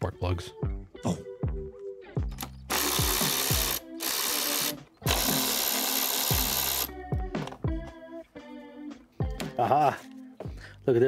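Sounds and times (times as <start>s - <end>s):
background music: 0.0s - 11.0s
cordless power driver spinning: 2.7s - 6.9s.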